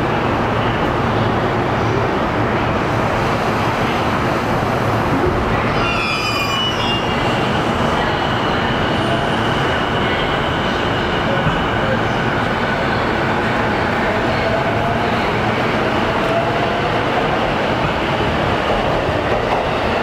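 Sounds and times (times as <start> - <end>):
high-pitched wheel squeal: 5.7 - 7.4.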